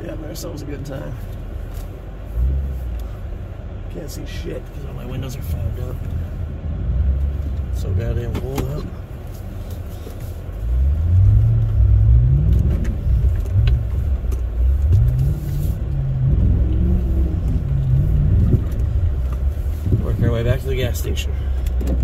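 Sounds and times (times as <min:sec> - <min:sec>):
car engine accelerating: 0:00.0 - 0:22.0.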